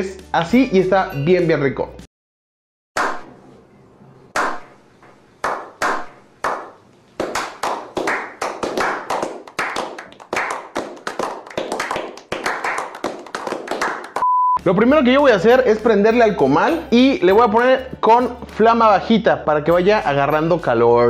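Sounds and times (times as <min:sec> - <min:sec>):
people clapping: 0:05.4 - 0:14.3.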